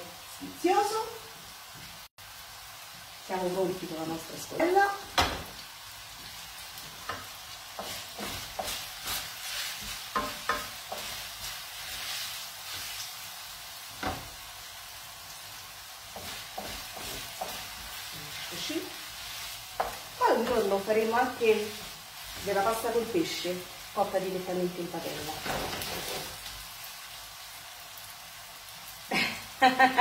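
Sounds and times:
pasta sizzling in a frying pan: 0:00.0 - 0:30.0
utensil scraping and knocking pan: 0:07.8 - 0:11.5.

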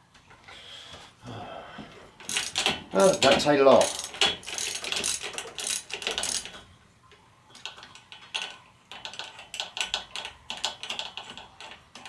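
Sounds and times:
ratchet handle clicking: 0:02.2 - 0:06.6.

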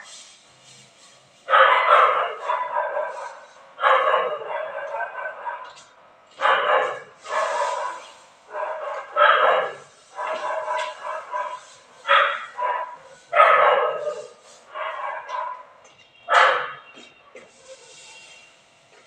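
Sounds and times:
dog barking and yelping: 0:01.5 - 0:15.7, 0:16.3 - 0:16.8.

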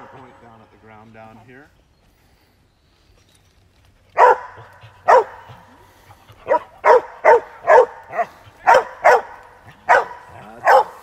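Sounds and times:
dog barking: 0:04.2 - 0:05.7, 0:06.4 - 0:11.0.

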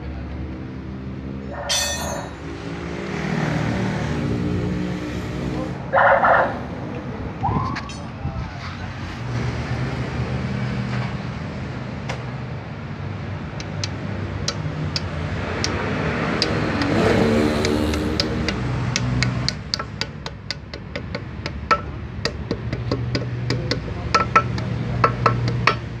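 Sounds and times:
hammer tapping metal: 0:01.7 - 0:02.5, 0:14.4 - 0:15.8, 0:17.6 - 0:26.0
vehicle engine humming: 0:10.4 - 0:26.0.

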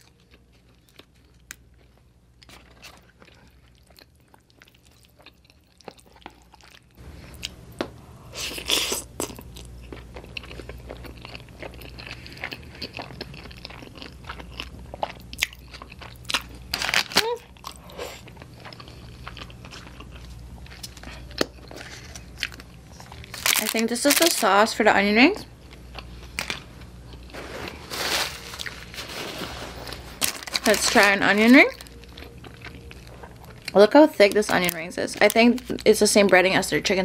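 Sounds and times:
soft chewing of bread: 0:00.0 - 0:16.7, 0:17.5 - 0:23.5, 0:25.6 - 0:27.8, 0:31.7 - 0:33.8
wet chewing and slurping noodles: 0:08.4 - 0:16.6.

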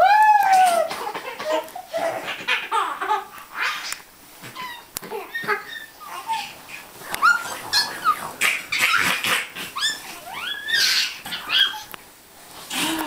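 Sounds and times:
babies squealing and shrieking: 0:03.2 - 0:11.9.

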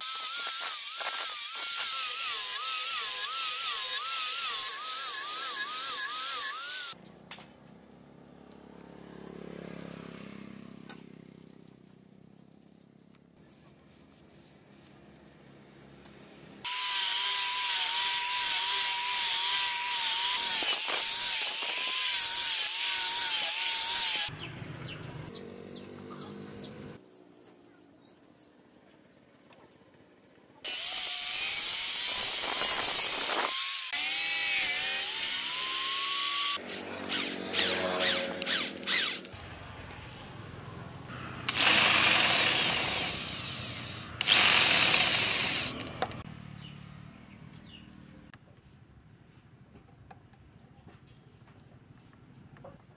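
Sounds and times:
electric drill boring: 0:00.0 - 0:07.0, 0:16.7 - 0:24.3, 0:30.7 - 0:39.4, 0:41.5 - 0:46.2.

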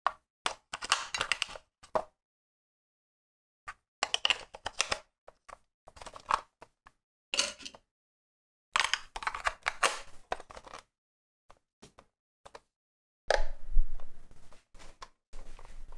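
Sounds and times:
plastic clicks and rattles: 0:00.5 - 0:02.0, 0:04.0 - 0:06.8, 0:08.8 - 0:10.9.

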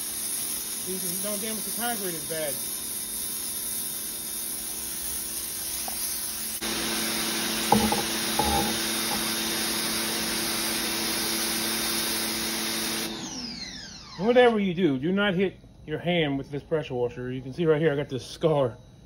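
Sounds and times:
pressure washer jet hissing on concrete: 0:00.0 - 0:13.2
electric pump motor humming: 0:04.9 - 0:14.0
brief knocks: 0:07.7 - 0:09.2.

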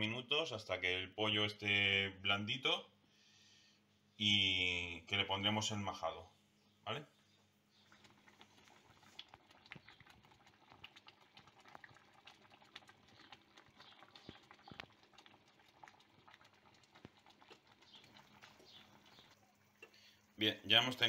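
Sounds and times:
stew bubbling and popping: 0:07.3 - 0:21.0.

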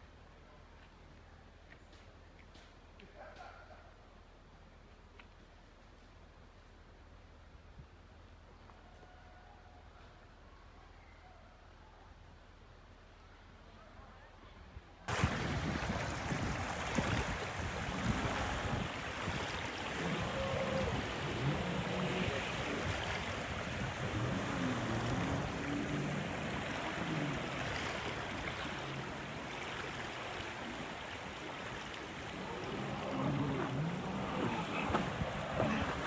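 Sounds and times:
wind: 0:00.0 - 0:36.0
distant boat engine: 0:15.1 - 0:36.0.

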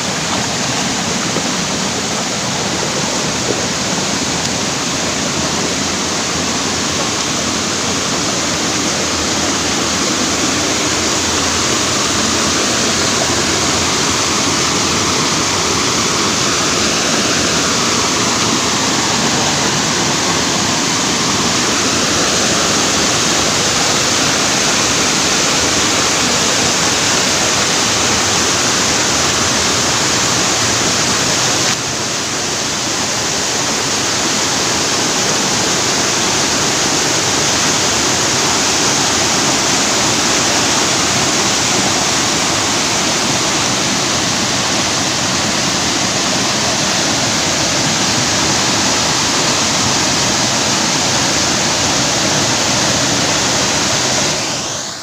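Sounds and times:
waterfall rushing and splashing: 0:00.0 - 0:55.0.

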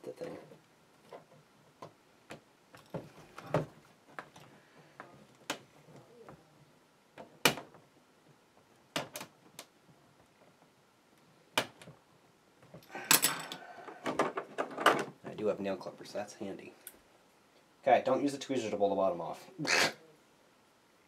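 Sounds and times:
hard objects clicking and knocking: 0:12.6 - 0:15.2.

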